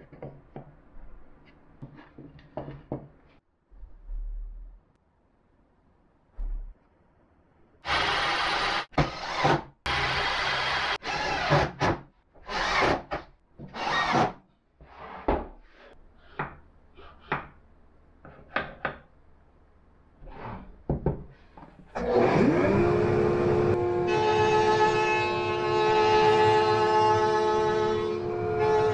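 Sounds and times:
router whine: 22.0 - 25.2.

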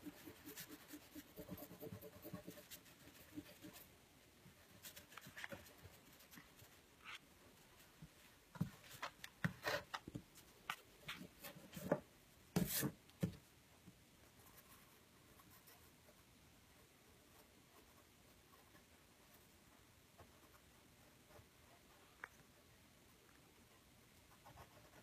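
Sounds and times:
pencil scratching on paper: 0.0 - 3.9, 4.6 - 7.2, 24.3 - 25.0.

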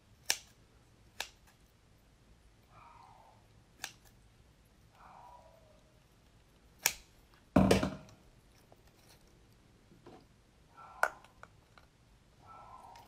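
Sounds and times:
scissors snipping with sharp click: 0.2 - 0.6, 1.2 - 1.6, 3.8 - 4.2, 6.8 - 7.1
shell knocking on platter: 7.6 - 8.1.

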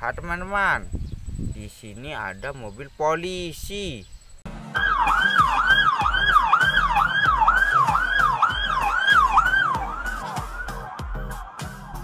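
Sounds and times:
police siren wailing: 4.7 - 12.0.

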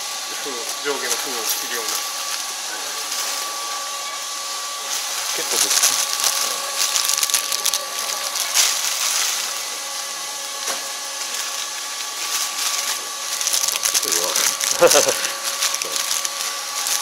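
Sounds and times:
packaging machine motor whine: 0.0 - 17.0
film rustling and crackling: 4.9 - 17.0.

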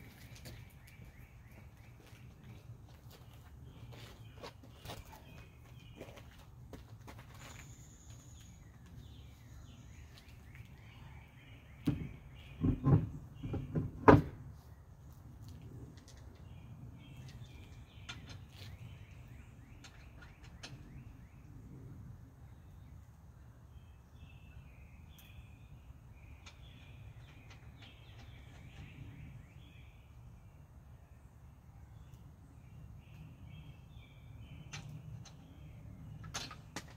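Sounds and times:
birds chirping faintly: 0.0 - 36.9
dull knocks and clunks: 11.8 - 14.4.

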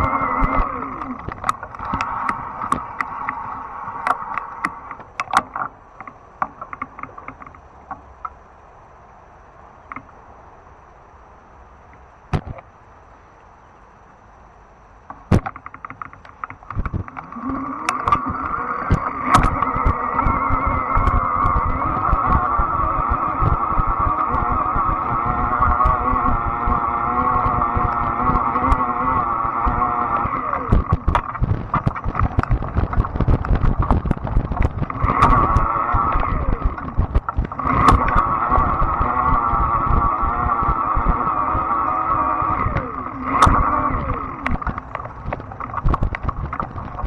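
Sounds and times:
electric motor whine: 0.0 - 5.6, 16.7 - 47.0
bike rattling over bumps: 0.0 - 5.7, 15.3 - 47.0
sharp click: 15.1 - 20.0
quick run of ticks: 15.1 - 47.0
wind buffeting microphone: 16.4 - 47.0
bike knocking over rough ground: 44.5 - 47.0.

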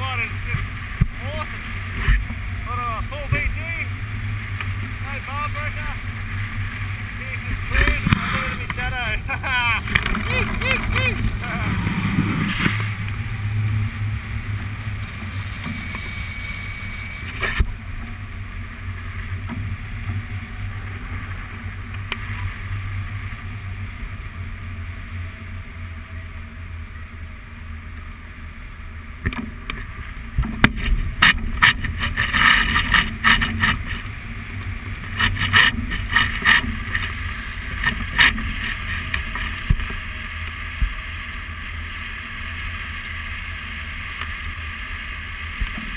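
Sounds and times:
gusty wind buffeting: 0.0 - 25.6
wind rumble on microphone: 0.0 - 45.9.

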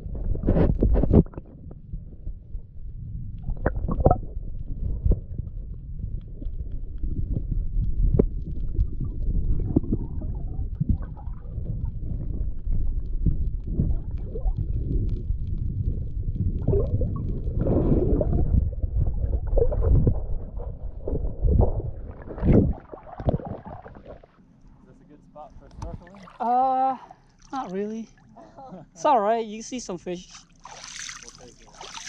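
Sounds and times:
underwater rumble and gurgling: 0.0 - 24.6.

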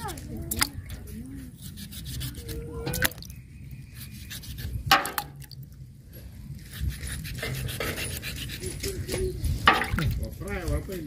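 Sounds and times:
wet clicks and drips: 0.4 - 1.0.

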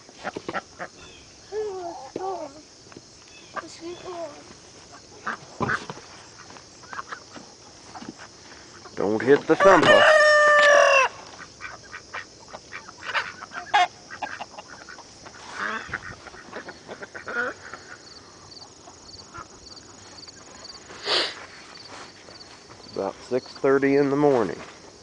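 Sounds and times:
ducks calling: 0.0 - 1.4, 3.4 - 21.5
cricket chirping: 0.0 - 25.0
chickens clucking: 3.5 - 23.1
rooster crowing: 9.6 - 11.2.

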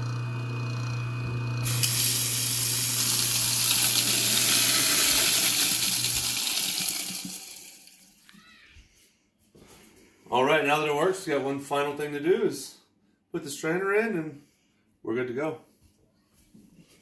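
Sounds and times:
garbage disposal motor humming: 0.0 - 8.2
tap water pouring into drain: 1.6 - 8.2.

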